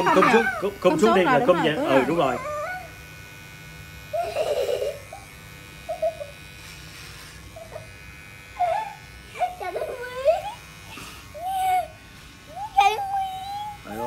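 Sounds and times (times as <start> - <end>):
hair clippers buzzing: 0.0 - 14.0
child squealing and giggling: 4.1 - 6.4, 8.6 - 10.7, 11.4 - 13.9.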